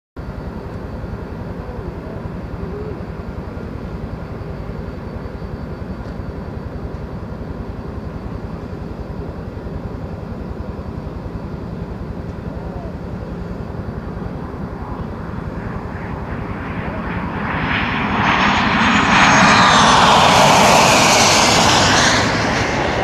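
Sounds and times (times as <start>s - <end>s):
jet engines rumbling: 0.2s - 23.0s.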